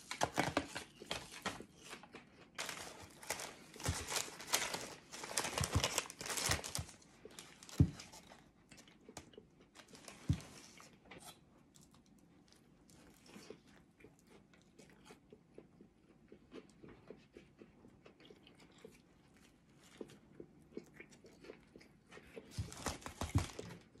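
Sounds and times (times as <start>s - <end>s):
paper wrapper crinkling: 0.0s - 8.3s, 9.8s - 10.7s, 22.5s - 23.8s
biting and chewing: 0.0s - 24.0s.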